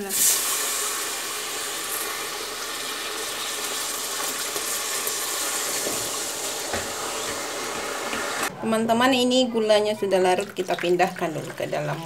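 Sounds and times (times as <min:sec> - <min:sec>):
hot caramel hissing and sizzling: 0:00.0 - 0:08.5.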